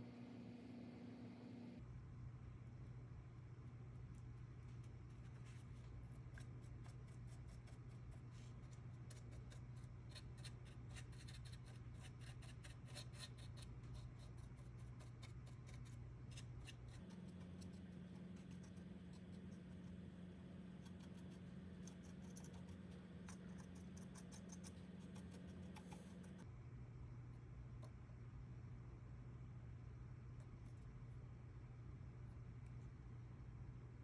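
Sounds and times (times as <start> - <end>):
steady low hum: 0.0 - 34.0
paintbrush scratching and ticking: 4.6 - 26.5.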